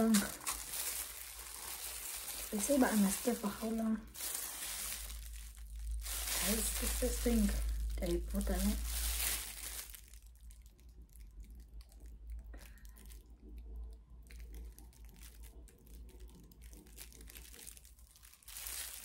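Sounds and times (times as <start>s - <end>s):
plastic gloves crinkling on tub: 0.0s - 19.0s.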